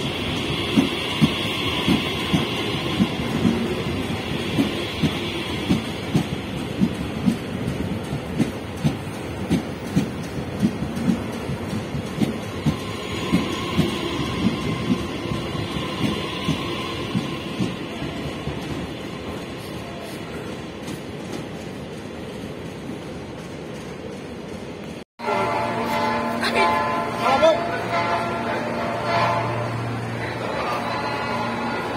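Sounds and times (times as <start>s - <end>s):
train wheels clacking over rail joints: 0.0s - 19.0s
train rumble: 0.0s - 31.9s.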